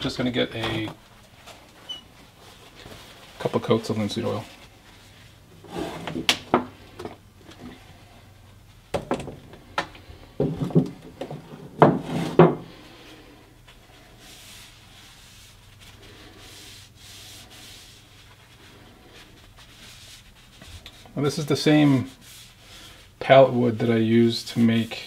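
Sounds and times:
paper towel crinkling: 0:00.1 - 0:06.0, 0:13.6 - 0:25.0
paper towel rubbing: 0:13.0 - 0:25.0.

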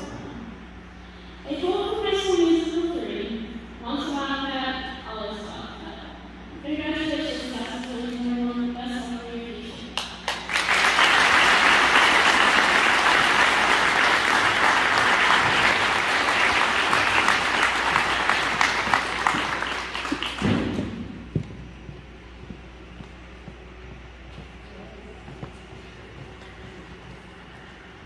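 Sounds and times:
audience applause: 0:10.3 - 0:20.8.

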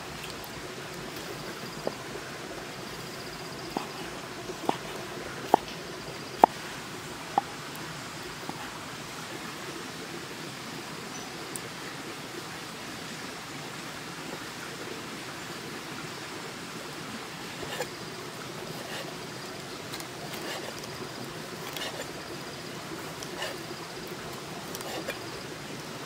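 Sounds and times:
steady background hiss: 0:00.0 - 0:26.0.

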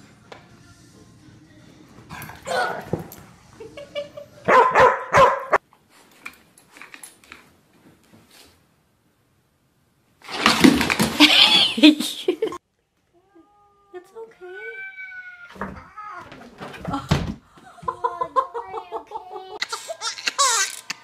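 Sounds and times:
dogs barking: 0:02.1 - 0:03.2, 0:04.4 - 0:05.6.

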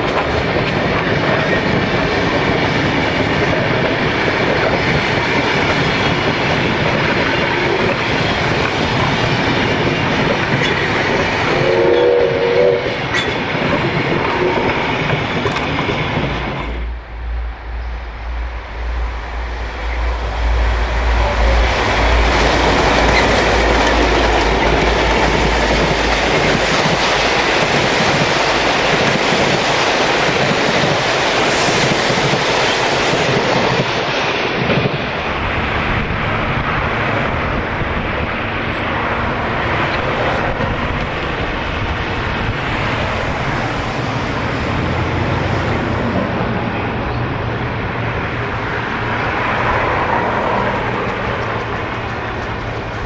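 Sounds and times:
train wheels clattering on rails: 0:00.0 - 0:11.7, 0:12.9 - 0:16.9, 0:20.9 - 0:37.5, 0:49.4 - 0:53.0
low train rumble: 0:00.0 - 0:53.0
multi-tone train horn blast: 0:11.4 - 0:13.4.

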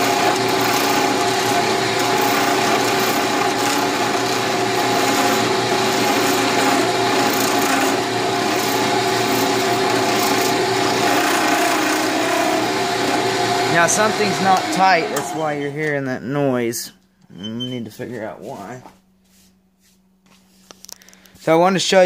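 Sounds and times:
wood lathe humming: 0:00.0 - 0:16.0.

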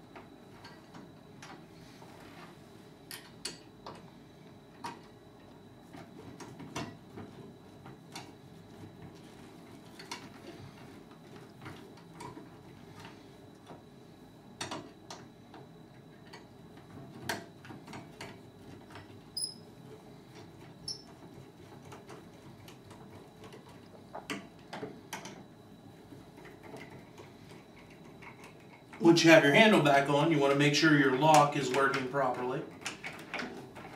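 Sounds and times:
low room hum: 0:00.0 - 0:33.9
short high squeaks: 0:19.4 - 0:19.6.

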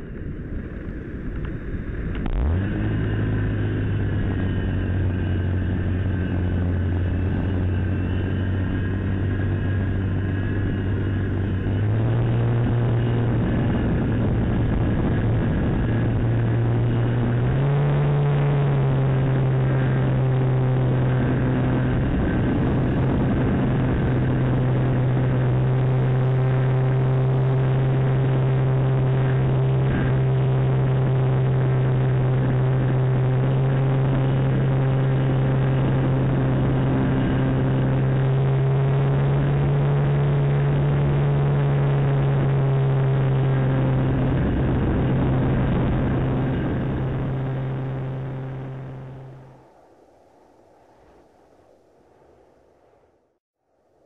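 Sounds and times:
electric motor and propeller whine: 0:00.0 - 0:52.4
rush of air: 0:44.1 - 0:54.0.

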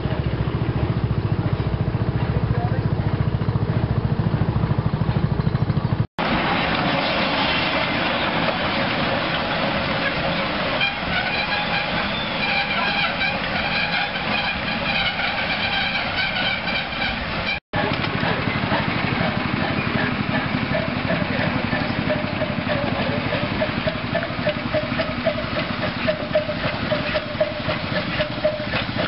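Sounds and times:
engine running with fast beat: 0:00.0 - 0:29.0
steam hissing from locomotive: 0:06.2 - 0:15.9, 0:16.6 - 0:29.0.

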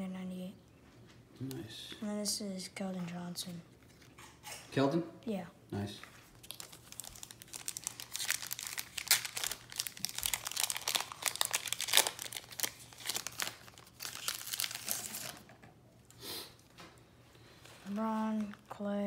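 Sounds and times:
foil wrapper crinkling and tearing: 0:06.4 - 0:15.5.

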